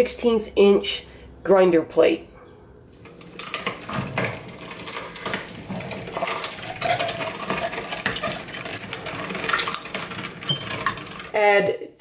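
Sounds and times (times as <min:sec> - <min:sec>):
hand-cranked meat grinder grinding: 0:03.0 - 0:11.4
grinder squeaks: 0:04.7 - 0:11.3.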